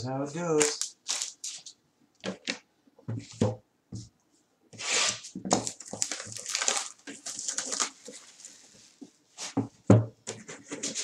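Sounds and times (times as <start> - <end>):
plastic shrink-wrap tearing and crinkling: 0.5 - 1.8, 4.8 - 8.6.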